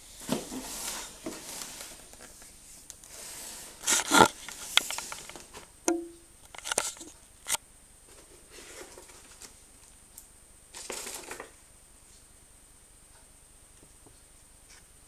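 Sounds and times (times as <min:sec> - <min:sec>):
paper rustling: 0:00.2 - 0:05.7, 0:08.1 - 0:09.9, 0:10.8 - 0:11.6.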